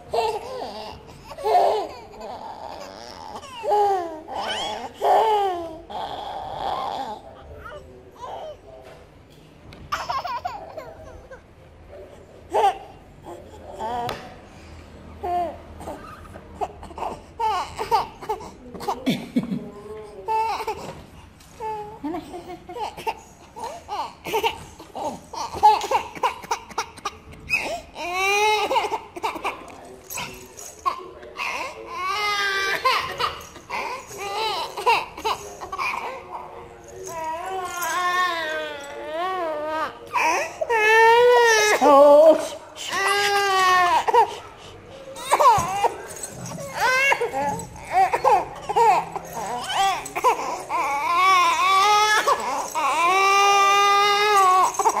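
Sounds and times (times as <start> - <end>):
toddler crying and wailing: 27.5 - 44.4, 45.1 - 55.0.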